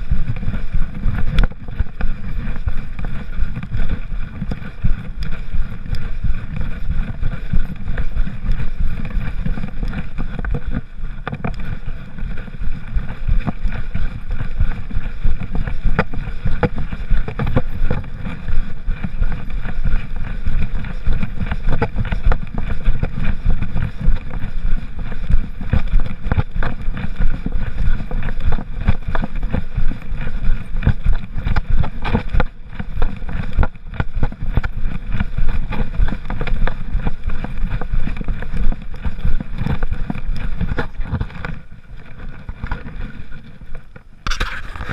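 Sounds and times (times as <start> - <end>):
camera handling rumble: 0.0 - 24.5, 26.4 - 44.9
camera knocks and rubs: 44.2 - 44.9.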